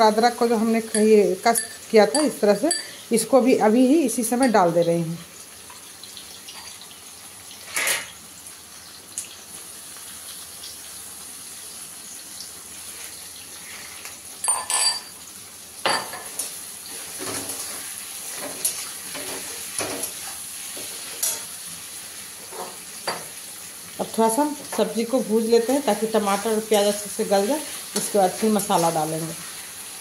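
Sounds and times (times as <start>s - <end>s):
soft frying sizzle: 0.0s - 30.0s.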